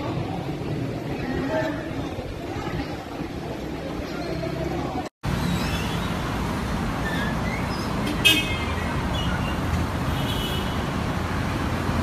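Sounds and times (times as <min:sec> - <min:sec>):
faint voices: 0:00.0 - 0:05.1.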